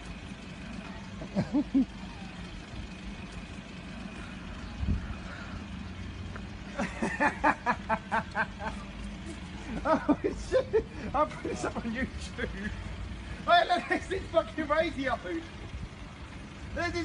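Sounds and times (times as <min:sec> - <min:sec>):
vehicle engine running: 0:00.0 - 0:17.0
person laughing: 0:01.2 - 0:02.0, 0:06.7 - 0:12.9.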